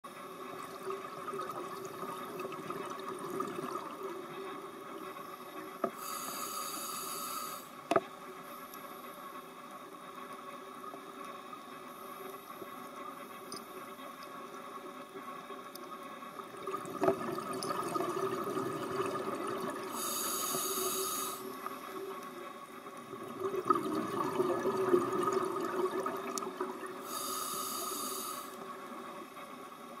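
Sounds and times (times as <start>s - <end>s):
underwater hiss: 5.9s - 7.8s, 19.7s - 22.1s, 27.0s - 28.6s
regulator breathing: 6.0s - 7.8s
exhaled bubbles bursting: 16.6s - 19.9s, 23.1s - 26.8s.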